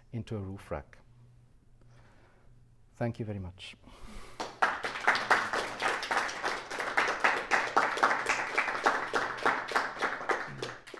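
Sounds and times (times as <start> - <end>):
audience applauding: 4.4 - 10.9.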